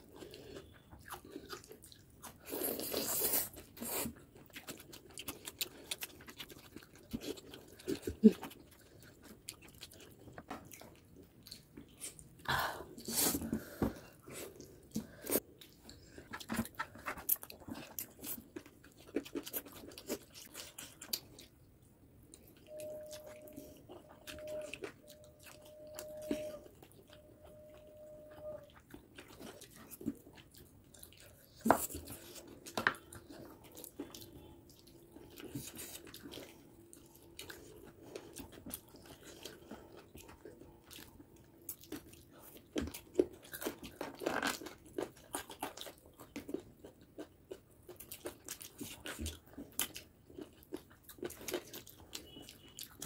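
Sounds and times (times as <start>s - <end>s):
wet chewing: 0.0s - 12.4s, 13.0s - 53.0s
faint steady tone: 21.4s - 30.2s.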